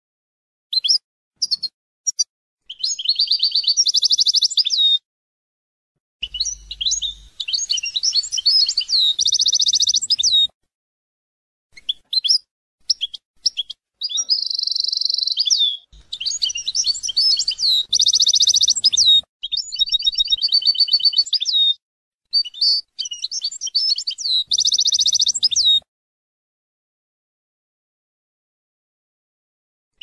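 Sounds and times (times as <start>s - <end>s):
goldfinch twittering and trilling: 6.2s - 10.5s, 12.9s - 25.8s.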